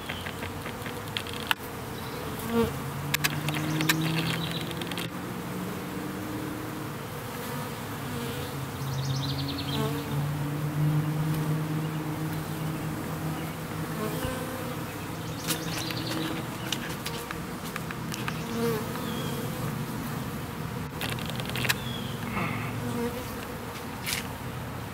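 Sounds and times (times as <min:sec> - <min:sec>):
sharp ticks: 0:00.0 - 0:01.6, 0:03.1 - 0:05.1
honey bees buzzing: 0:00.0 - 0:24.9.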